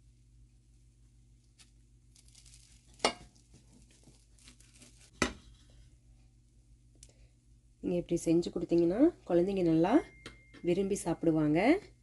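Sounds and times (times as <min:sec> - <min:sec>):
knife crunching through toasted bread: 0:01.6 - 0:05.7.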